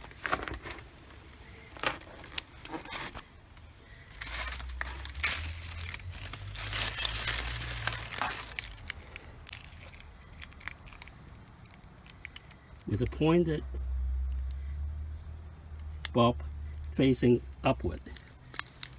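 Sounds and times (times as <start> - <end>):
plastic bag crinkling: 4.1 - 13.1, 16.6 - 18.9.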